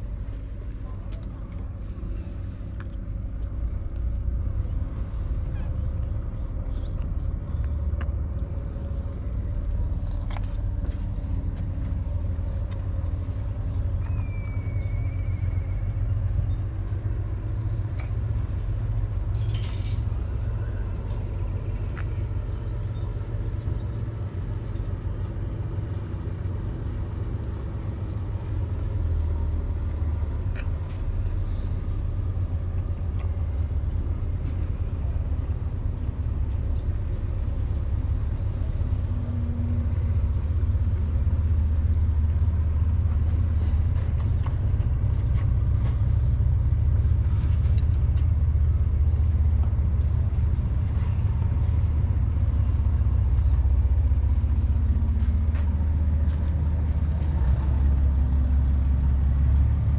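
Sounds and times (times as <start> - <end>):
faint high chirp: 13.7 - 16.7.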